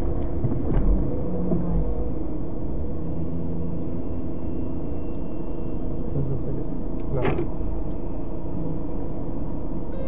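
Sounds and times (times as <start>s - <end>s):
car engine and road rumble: 0.0s - 10.0s.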